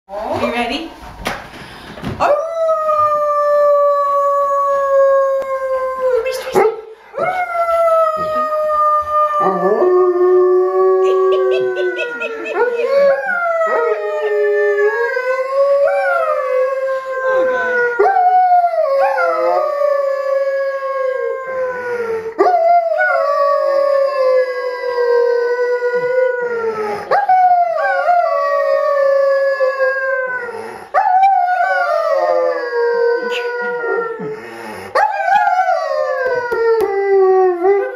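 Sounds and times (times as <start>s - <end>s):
woman howling: 7.2s - 18.0s
dog howling: 7.2s - 34.3s.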